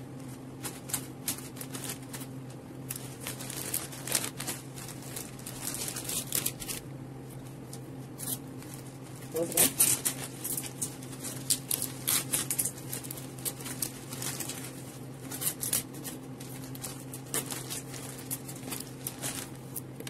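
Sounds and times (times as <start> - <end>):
steady low hum: 0.0 - 20.0
wrapping paper rustling: 0.0 - 20.0.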